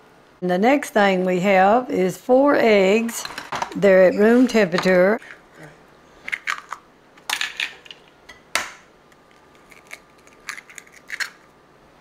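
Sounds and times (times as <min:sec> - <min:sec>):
eggs cracking: 0:06.2 - 0:11.5.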